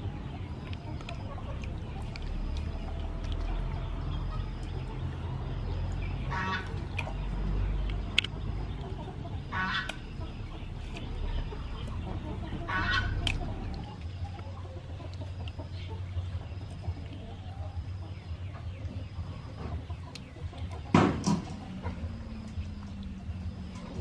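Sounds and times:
chickens clucking: 0.0s - 24.0s
low background rumble: 0.0s - 24.0s
sharp clicks: 6.6s - 8.9s, 13.1s - 14.1s.

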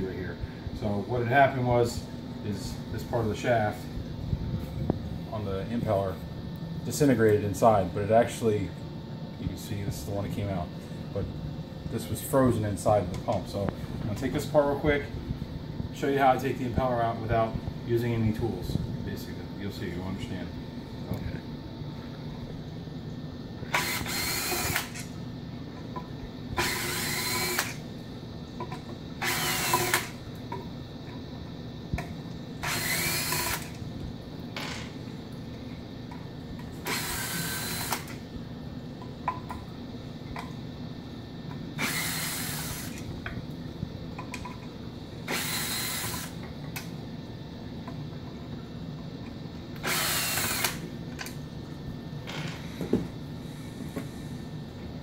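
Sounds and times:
cordless drill whirring: 23.7s - 25.1s, 26.6s - 27.8s, 29.2s - 30.2s, 32.6s - 33.8s, 36.8s - 38.2s, 41.8s - 43.0s, 45.3s - 46.4s, 49.8s - 50.8s.

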